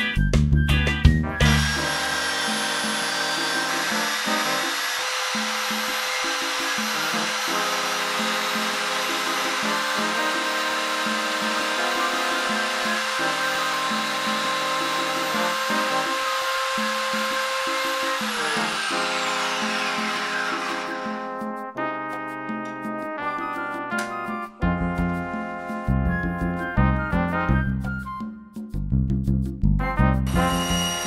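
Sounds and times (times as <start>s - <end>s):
background music with bass: 0.0s - 2.2s, 21.3s - 30.8s
belt sander running: 1.4s - 21.3s, 30.5s - 31.0s.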